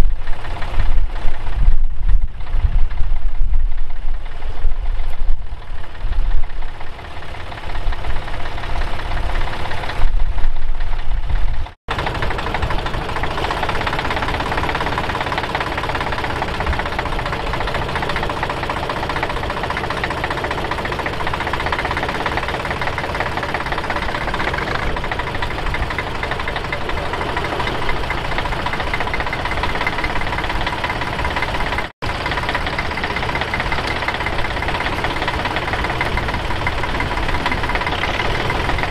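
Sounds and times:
wind buffeting microphone: 0:00.0 - 0:11.8
diesel tractor engine under load: 0:00.0 - 0:38.9.

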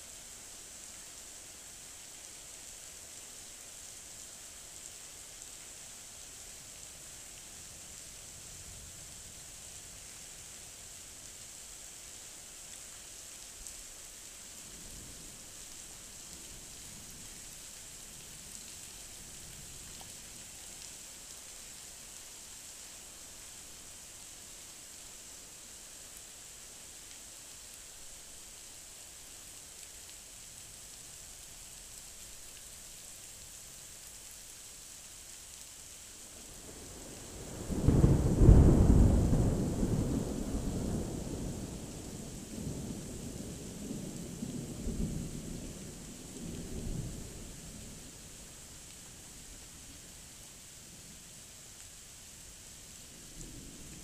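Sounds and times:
heavy rain pouring: 0:12.3 - 0:54.0.

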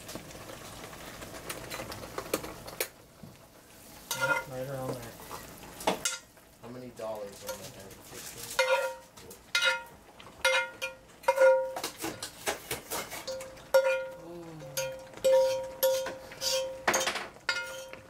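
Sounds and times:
utensil knocking on cast-iron skillet: 0:08.6 - 0:18.0.

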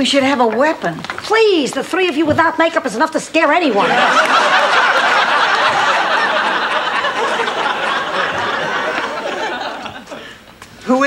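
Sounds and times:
audience laughing: 0:03.7 - 0:10.4.

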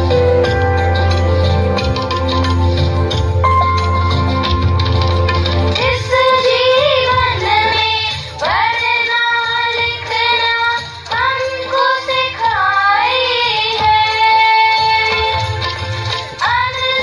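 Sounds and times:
low bass accompaniment: 0:00.0 - 0:05.8.

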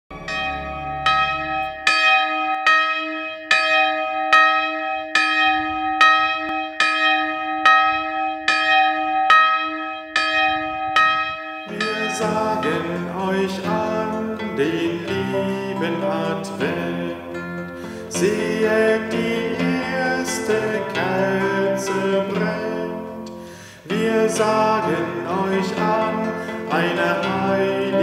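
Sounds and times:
acoustic guitar music: 0:00.1 - 0:02.6, 0:11.6 - 0:28.0
church bell ringing: 0:00.1 - 0:28.0.

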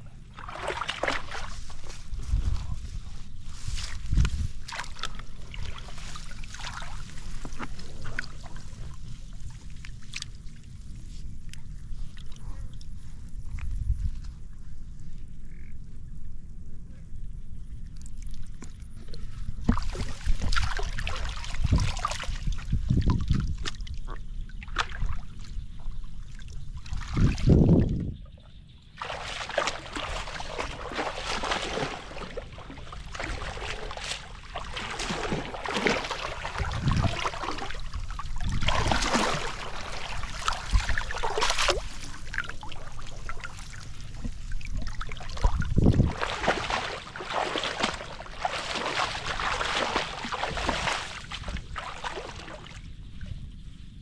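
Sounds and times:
water sloshing and trickling: 0:00.0 - 0:14.2, 0:17.8 - 0:53.8
dull low thumps: 0:44.2 - 0:51.8.

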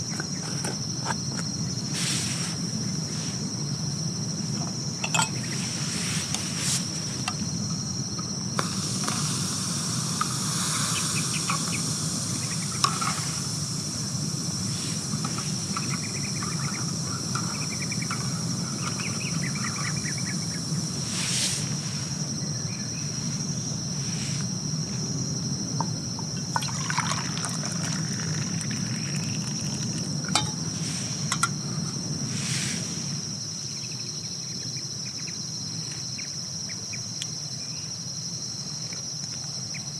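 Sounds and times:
crickets trilling: 0:00.0 - 0:39.9
liquid trickling: 0:26.4 - 0:30.7.

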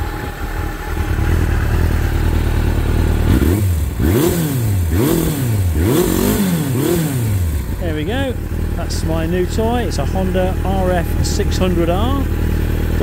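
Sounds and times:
motorcycle engine idling and revving: 0:00.0 - 0:13.0
person speaking: 0:07.8 - 0:12.4.

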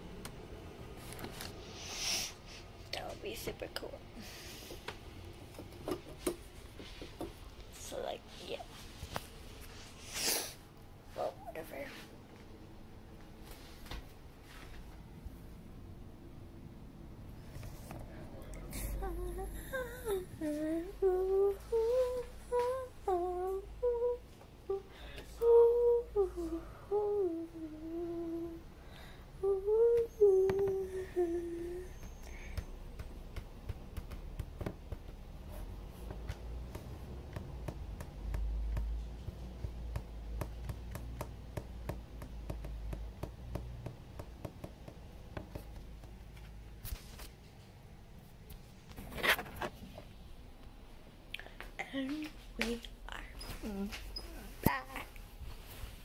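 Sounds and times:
girl humming: 0:18.6 - 0:28.7, 0:29.4 - 0:32.7.

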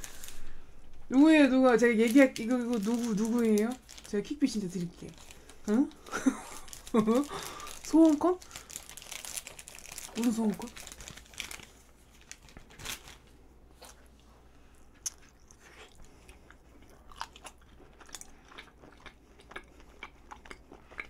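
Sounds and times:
person chewing with wet mouth sounds: 0:13.7 - 0:21.0.

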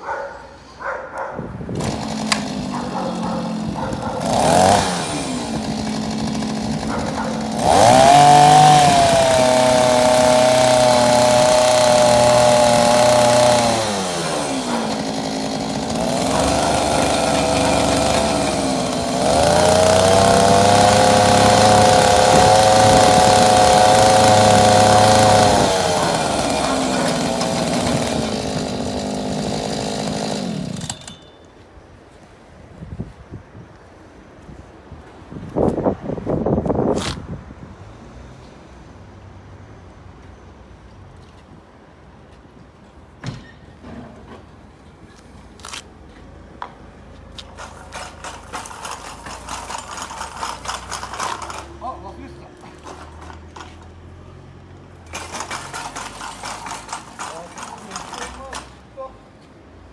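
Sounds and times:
small two-stroke engine revving: 0:01.7 - 0:31.2, 0:47.6 - 0:52.2, 0:55.1 - 0:58.7.

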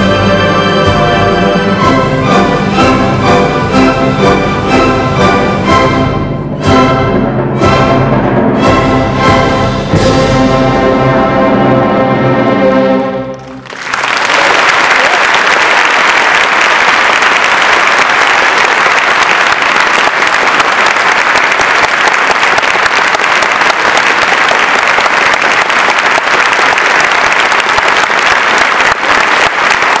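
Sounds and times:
audience applauding: 0:13.4 - 0:30.0.

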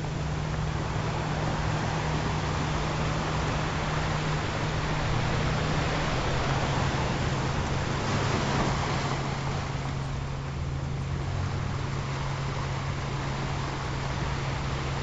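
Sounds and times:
steady low humming tone: 0:00.0 - 0:08.5
ocean waves washing: 0:00.0 - 0:15.0.

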